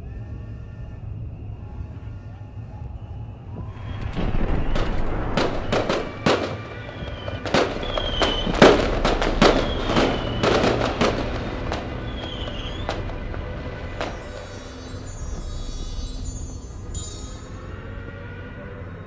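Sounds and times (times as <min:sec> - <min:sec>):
firework whistles: 0:00.0 - 0:18.9
fireworks bangs and crackling: 0:03.6 - 0:17.6.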